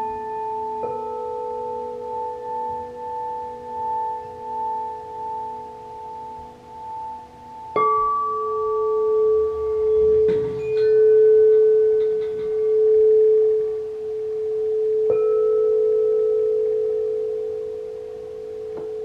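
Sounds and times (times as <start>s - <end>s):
singing bowls humming: 0.0s - 19.0s
mallet striking singing bowl: 9.3s - 13.8s.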